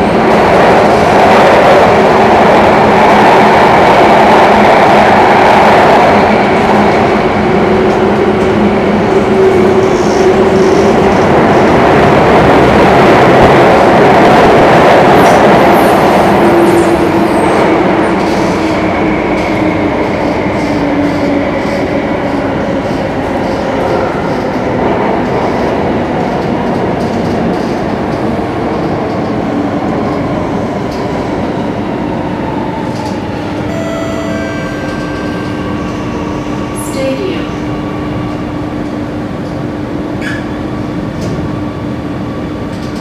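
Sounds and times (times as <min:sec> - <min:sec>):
train wheels rumbling on rail: 0:00.0 - 0:33.7, 0:34.7 - 0:43.0
high whining tones: 0:33.6 - 0:37.0.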